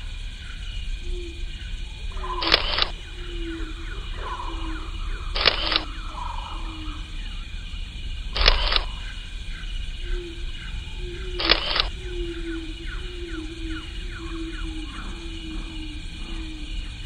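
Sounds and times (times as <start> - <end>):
high insect-like tones: 0.0 - 17.0
gliding animal-like calls: 2.1 - 7.5
camera shutter clicks: 2.4 - 2.9, 5.4 - 5.9, 8.4 - 8.8, 11.4 - 11.9.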